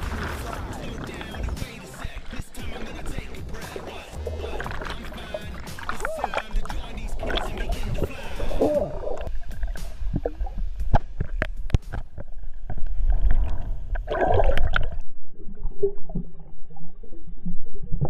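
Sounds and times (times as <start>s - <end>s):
sharp clicks underwater: 0.0s - 15.0s
muffled underwater bubbling: 0.0s - 18.0s.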